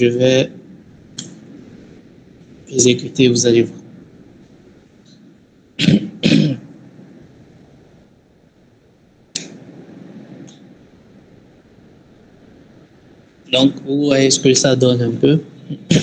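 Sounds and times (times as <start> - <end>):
faint hiss: 0.0 - 16.0
man coughing: 5.8 - 6.6, 15.7 - 16.0.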